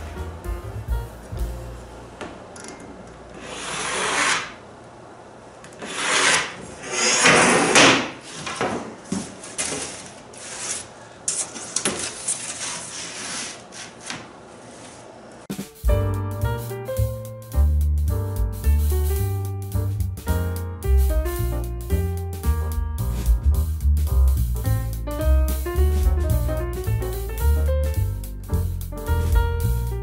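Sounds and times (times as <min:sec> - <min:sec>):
pencil and square scraping plywood: 0:03.4 - 0:04.6, 0:05.8 - 0:08.4.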